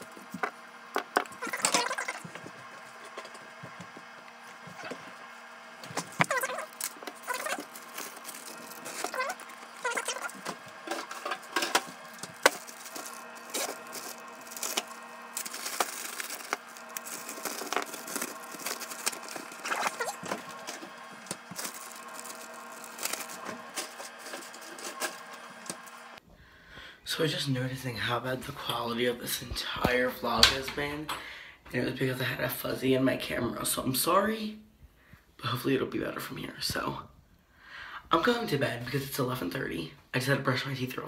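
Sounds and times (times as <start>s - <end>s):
steady low hum: 0.0s - 39.2s
kitchen items clattering: 5.9s - 25.8s
short squeaks: 8.8s - 10.5s.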